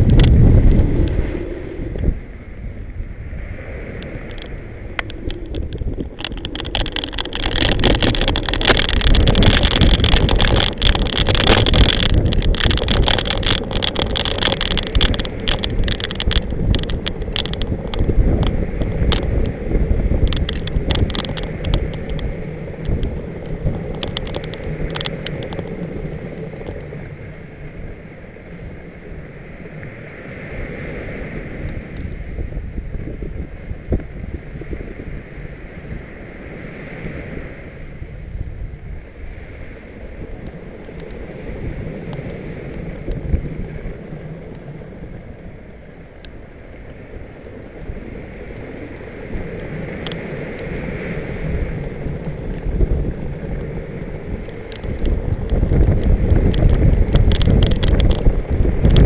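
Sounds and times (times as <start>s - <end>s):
wind buffeting microphone: 0.0s - 59.0s
buggy rattling and knocking: 4.3s - 19.4s, 22.9s - 25.8s.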